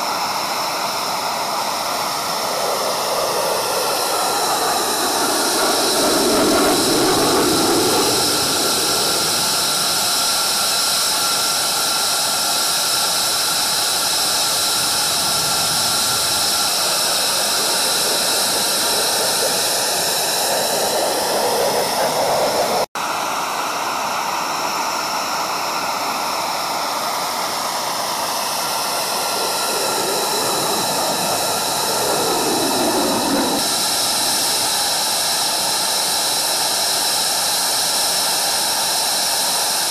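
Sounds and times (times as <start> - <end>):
jet engines roaring: 0.0 - 23.0, 24.0 - 39.9
high whine: 1.3 - 11.1, 12.2 - 22.9, 25.8 - 35.0.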